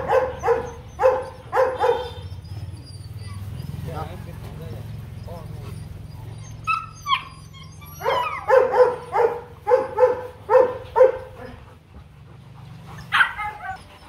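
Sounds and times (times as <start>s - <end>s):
dog barking rapidly: 0.0s - 2.2s, 8.0s - 11.4s, 13.1s - 13.8s
dog whining yelps: 0.0s - 3.9s, 5.1s - 11.4s, 13.0s - 14.0s.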